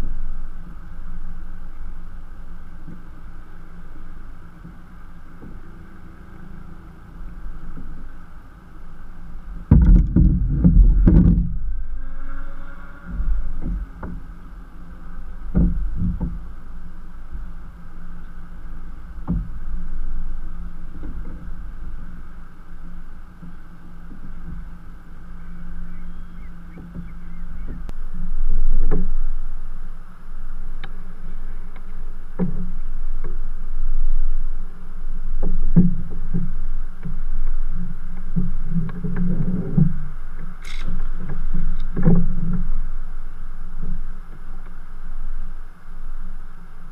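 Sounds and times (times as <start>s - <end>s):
water lapping against hull: 0.0s - 46.9s
knocks on kayak hull: 9.7s - 11.6s.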